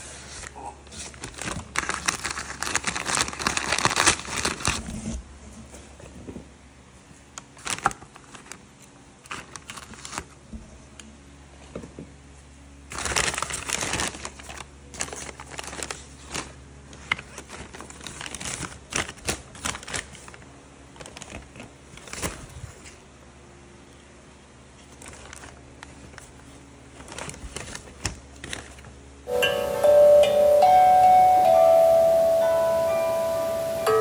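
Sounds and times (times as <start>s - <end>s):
paper crinkling and rustling: 0.2s - 5.2s, 7.4s - 10.4s, 12.9s - 23.0s, 24.8s - 29.0s.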